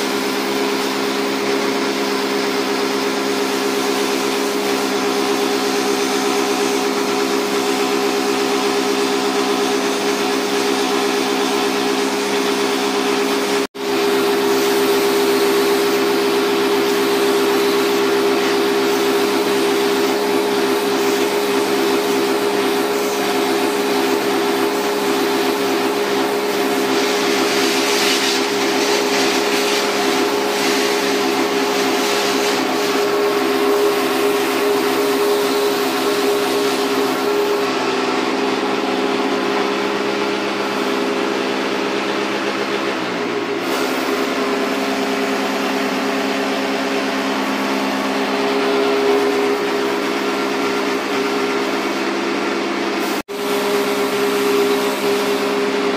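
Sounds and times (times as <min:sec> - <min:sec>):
pressure washer pump humming: 0:00.0 - 0:55.9
water spray hissing: 0:14.3 - 0:37.6.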